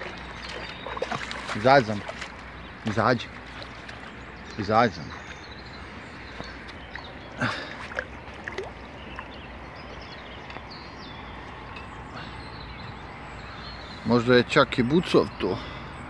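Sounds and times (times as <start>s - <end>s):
fish splashing: 0.0s - 2.7s, 6.1s - 9.4s
river water rushing: 0.0s - 10.4s.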